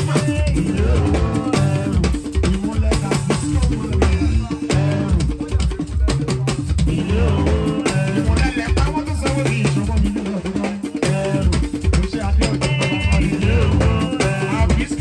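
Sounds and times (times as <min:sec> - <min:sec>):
man singing into a microphone: 0:00.0 - 0:15.0
talking drums and hand percussion: 0:00.0 - 0:15.0
deep pulsing bass line: 0:00.5 - 0:02.0, 0:06.8 - 0:08.4.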